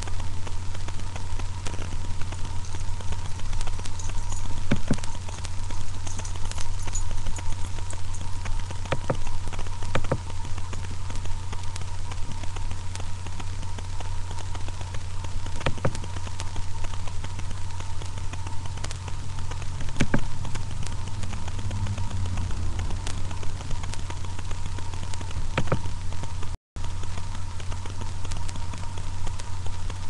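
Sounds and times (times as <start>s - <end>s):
electrical hum and hiss: 0.0s - 30.0s
sharp clicks and knocks: 2.6s - 11.3s, 15.6s - 16.5s, 18.0s - 26.0s.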